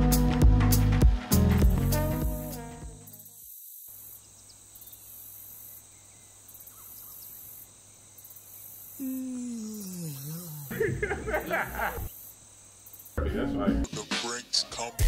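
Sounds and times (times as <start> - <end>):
cricket trill: 2.3 - 13.2
person yawning: 9.0 - 11.0.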